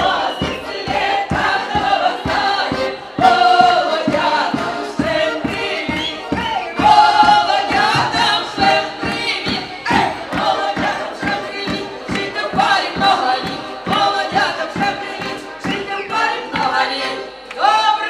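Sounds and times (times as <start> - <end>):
accordion: 0.0 - 18.0
women singing together: 0.0 - 18.0
bass drum beat: 0.9 - 10.9.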